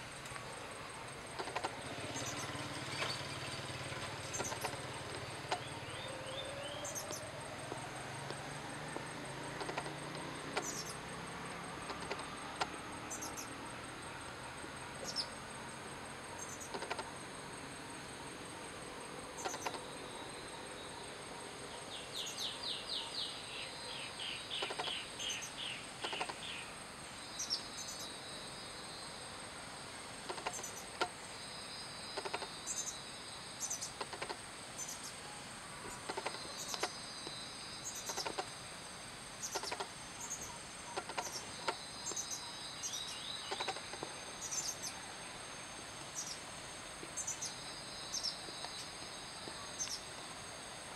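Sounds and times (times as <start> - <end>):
insects droning: 0.0 - 50.9
birds calling: 1.3 - 7.8, 9.0 - 11.0, 19.4 - 19.9, 22.0 - 26.7, 35.8 - 38.6, 39.4 - 45.0.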